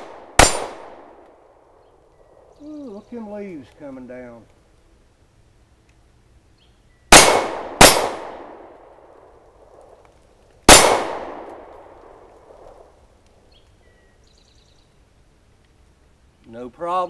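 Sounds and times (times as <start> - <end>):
pistol shots echoing: 0.0 - 1.2, 7.1 - 9.0, 10.7 - 12.8.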